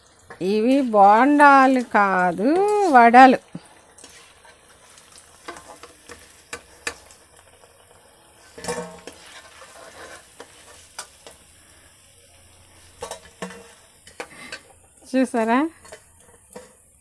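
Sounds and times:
food deep-frying in sizzling oil: 0.0s - 17.0s
metal clatter on plate: 8.6s - 9.2s.

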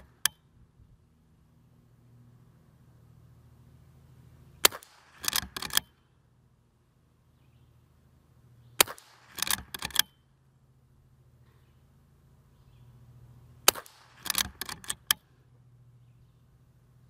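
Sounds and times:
rifle shots: 4.6s - 5.5s, 8.8s - 9.7s, 13.6s - 15.0s
rifle lever clatter: 4.7s - 5.9s, 9.3s - 10.2s, 13.7s - 15.2s.

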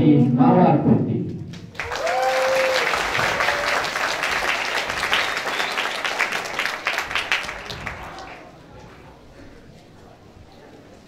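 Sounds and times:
audience applauding: 1.5s - 8.6s.

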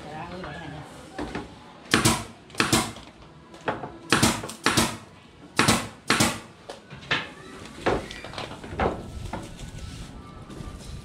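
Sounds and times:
nail gun firing into wood: 1.9s - 3.0s, 4.1s - 6.5s.

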